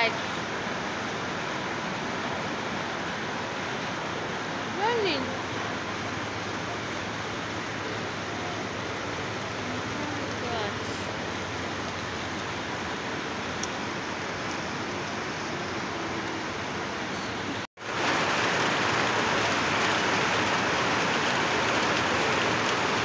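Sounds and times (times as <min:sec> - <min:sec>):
rain on trees and rooftops: 0:00.0 - 0:23.0.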